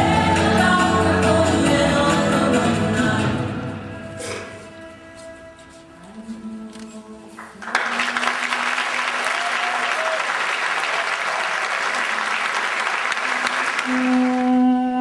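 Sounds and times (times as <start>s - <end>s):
audience applauding: 7.4s - 14.8s.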